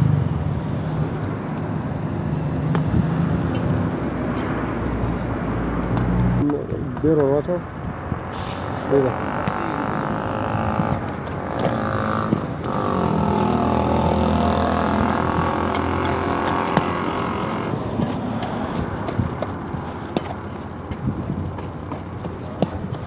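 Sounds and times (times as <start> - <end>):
vehicle engine running: 9.0 - 23.0.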